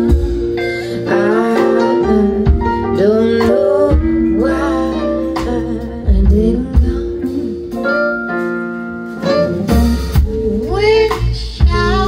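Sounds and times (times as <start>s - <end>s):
person singing: 0.0s - 8.0s, 9.2s - 12.0s
drums: 0.0s - 12.0s
electric guitar: 0.0s - 12.0s.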